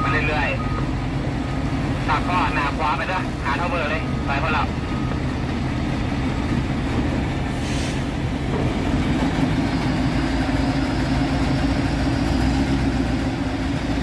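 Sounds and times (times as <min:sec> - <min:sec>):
diesel engine running: 0:00.0 - 0:14.0
short hiss: 0:07.6 - 0:08.1.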